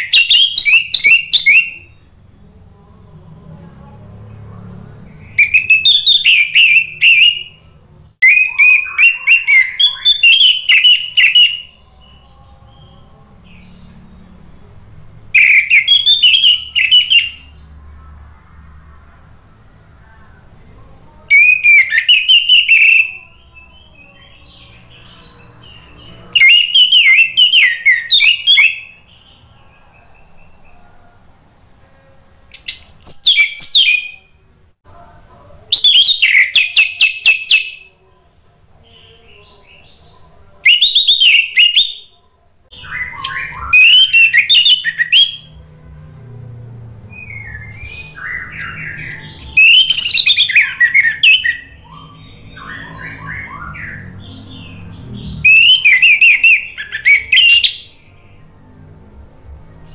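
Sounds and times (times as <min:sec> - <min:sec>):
soft bird twittering: 0:05.0 - 0:14.2, 0:15.4 - 0:18.4, 0:21.1 - 0:30.9, 0:42.8 - 0:45.6, 0:47.1 - 0:58.3.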